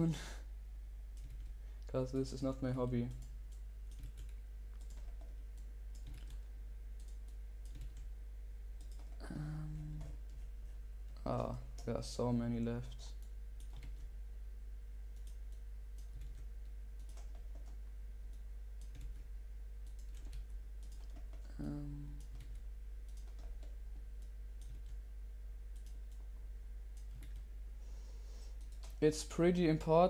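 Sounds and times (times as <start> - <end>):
steady low hum: 0.0 - 30.0
keyboard and mouse clicking: 1.2 - 1.6, 3.0 - 6.4, 7.0 - 8.1, 8.8 - 10.4, 12.9 - 14.1, 15.2 - 25.0, 25.7 - 26.3, 26.9 - 27.5, 28.6 - 29.0.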